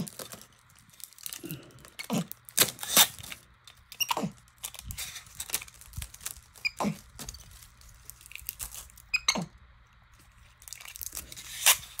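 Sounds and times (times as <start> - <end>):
tape clicks and crinkles: 0.0 - 12.0
tape pulled at dispenser rasp: 2.6 - 3.4, 11.3 - 12.0
monkey squeaks: 6.6 - 7.0, 9.1 - 9.5.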